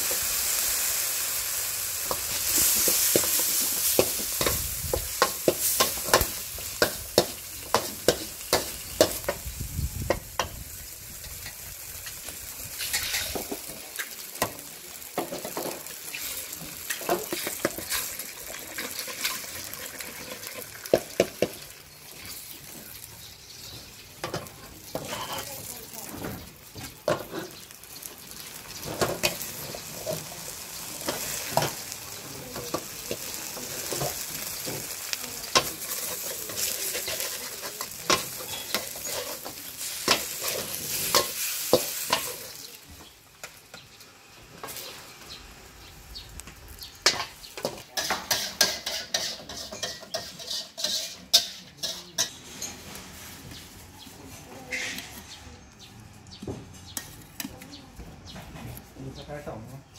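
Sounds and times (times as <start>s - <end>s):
food sizzling in a wok: 0.0s - 55.7s
metal spatula scraping a pan: 10.4s - 14.2s, 24.2s - 25.7s, 33.8s - 42.5s, 47.0s - 53.4s.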